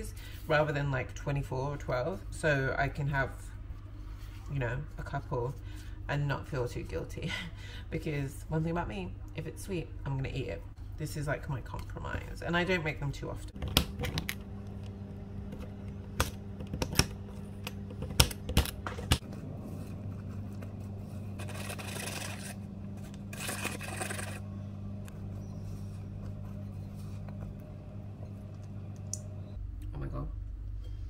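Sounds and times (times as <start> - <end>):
low steady hum: 0.0 - 31.0.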